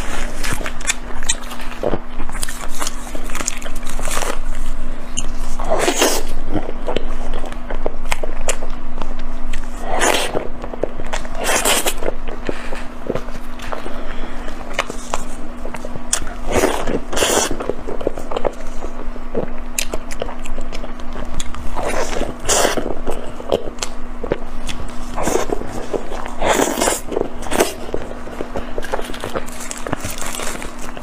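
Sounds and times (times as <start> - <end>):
low hum: 0.0 - 31.0
wet chewing: 0.0 - 31.0.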